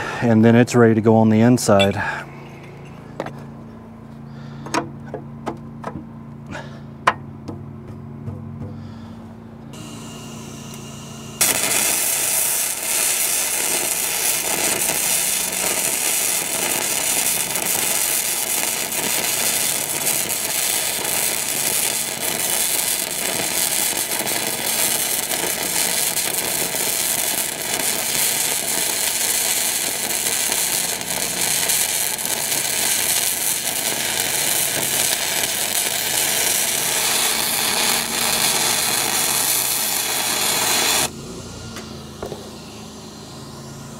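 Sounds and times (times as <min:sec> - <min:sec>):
welder arc crackling and sputtering: 0:09.8 - 0:41.1.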